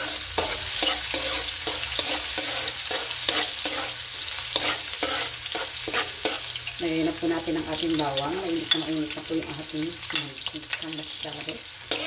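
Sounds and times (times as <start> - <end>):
metal ladle scraping wok: 0.0 - 6.6
ginger sizzling in hot oil: 0.0 - 12.0.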